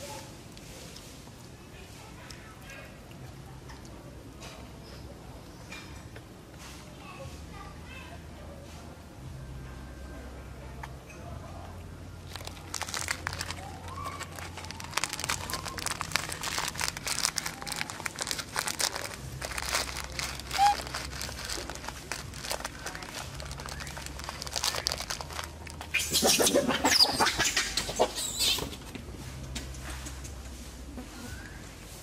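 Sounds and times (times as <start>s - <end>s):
crackling and rustling: 12.2s - 32.0s.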